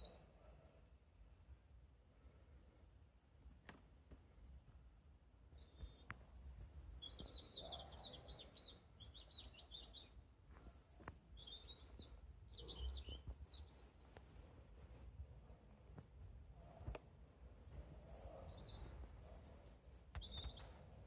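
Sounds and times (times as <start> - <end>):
small songbird twittering: 5.6 - 15.2.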